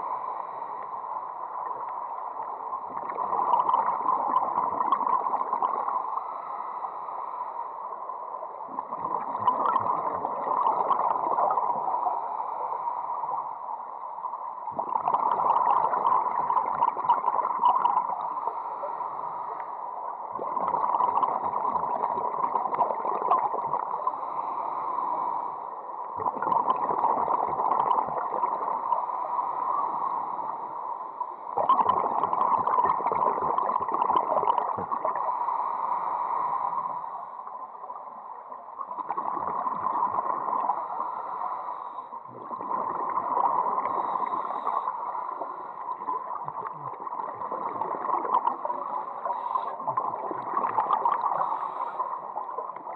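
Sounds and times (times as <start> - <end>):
scuba inhalations: 5.4 - 7.8, 11.3 - 13.4, 17.4 - 20.0, 23.6 - 25.9, 27.2 - 37.6, 39.1 - 52.9.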